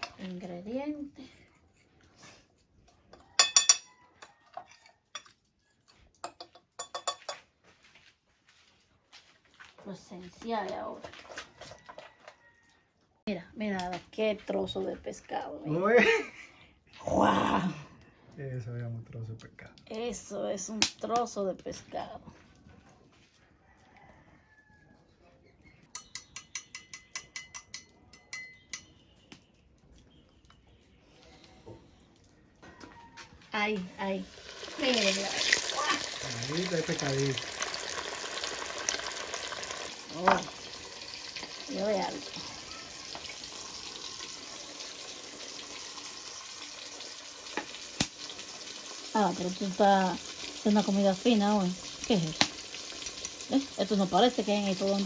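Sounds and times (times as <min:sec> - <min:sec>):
spoon clinking against bowl: 0:03.1 - 0:05.4, 0:06.2 - 0:07.4, 0:25.9 - 0:29.1.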